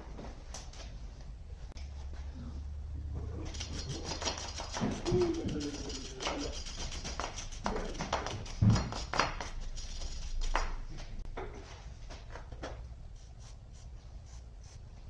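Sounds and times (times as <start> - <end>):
wire brush scraping metal: 3.4 - 10.6.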